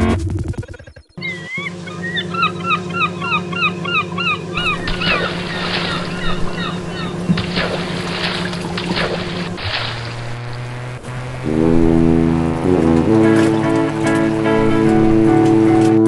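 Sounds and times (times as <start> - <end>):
steady low hum: 1.1 - 16.0
honking bird calls: 1.2 - 15.9
hissing splash-like bursts: 4.6 - 11.4.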